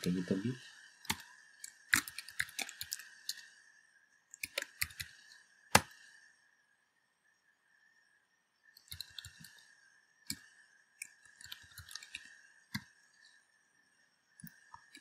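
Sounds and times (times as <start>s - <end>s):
computer keyboard typing: 1.0s - 3.4s, 4.3s - 5.9s, 8.8s - 9.6s, 11.0s - 12.9s, 14.8s - 15.0s.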